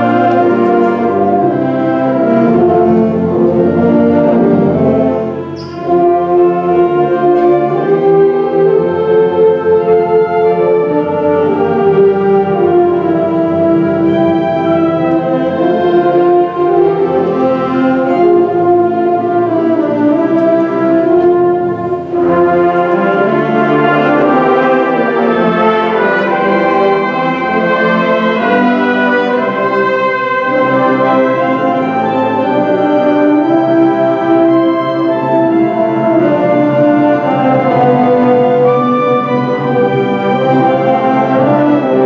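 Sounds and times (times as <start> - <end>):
concert band playing chords: 0.0 - 32.2.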